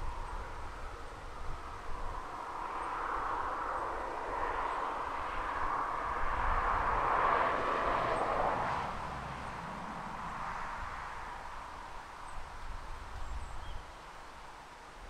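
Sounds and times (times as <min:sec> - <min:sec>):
distant engine passing: 0:00.1 - 0:11.8.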